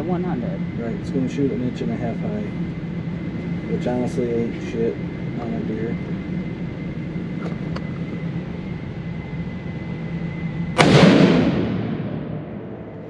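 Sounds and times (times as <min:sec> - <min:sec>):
steady hum: 0:00.0 - 0:13.0
rifle shot echoing: 0:10.8 - 0:13.0.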